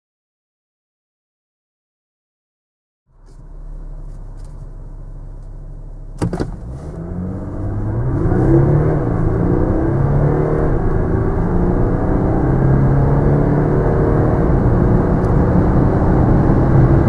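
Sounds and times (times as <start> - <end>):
gear upshift: 3.1 - 9.8
diesel engine accelerating: 3.1 - 17.0.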